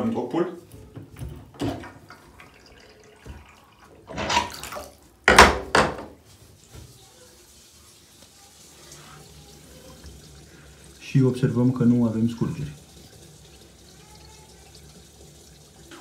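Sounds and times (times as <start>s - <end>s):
bathwater draining: 1.4s - 5.9s, 7.7s - 16.0s
water splashing: 1.6s - 5.1s
water trickling: 1.6s - 5.1s, 6.5s - 16.0s.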